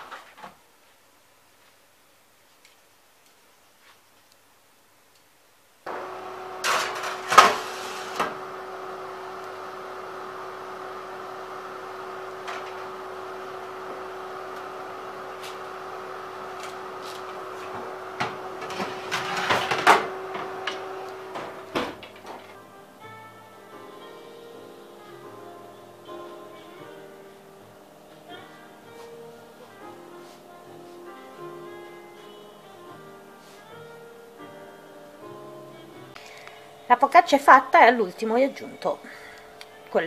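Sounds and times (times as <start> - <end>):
oven fan motor hum: 5.9 - 33.1
oven door shutting: 6.0 - 10.0, 10.6 - 22.6
baking pans clattering: 17.3 - 22.6.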